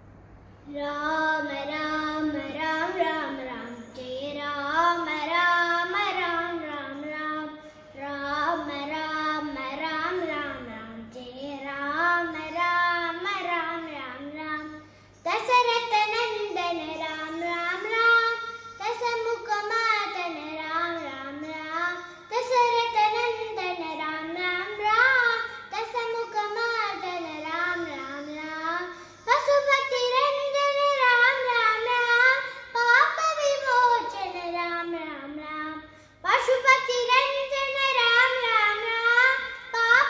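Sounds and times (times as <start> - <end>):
boy singing unaccompanied: 0.6 - 40.0.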